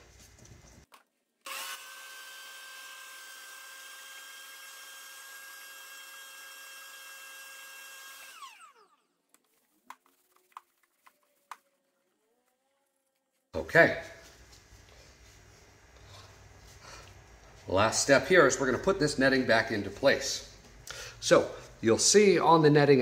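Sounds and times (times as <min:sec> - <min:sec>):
vacuum cleaner motor whining: 0:01.5 - 0:09.0.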